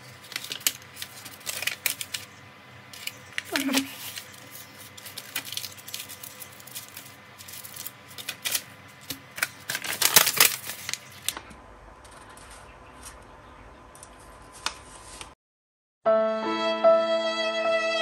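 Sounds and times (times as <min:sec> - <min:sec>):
paper rustling and crinkling: 0:00.0 - 0:11.4, 0:14.0 - 0:15.4.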